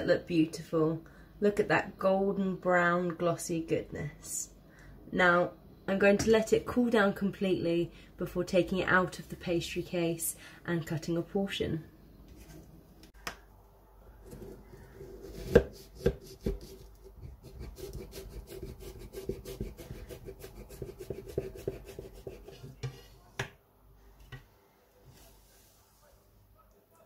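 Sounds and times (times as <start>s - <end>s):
knife sawing through pie crust: 14.3s - 22.8s.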